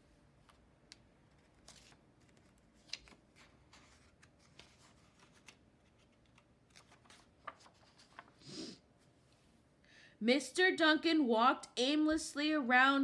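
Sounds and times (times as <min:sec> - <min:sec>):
paper page rustling and turning: 0:00.4 - 0:08.4.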